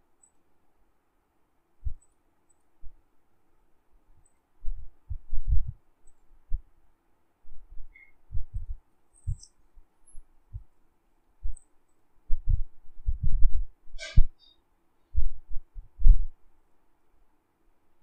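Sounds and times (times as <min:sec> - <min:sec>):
faint steady hum: 0:00.0 - 0:18.0
low dull thumps: 0:04.6 - 0:05.8, 0:07.5 - 0:09.5, 0:10.5 - 0:10.7, 0:12.3 - 0:14.4, 0:15.2 - 0:16.4.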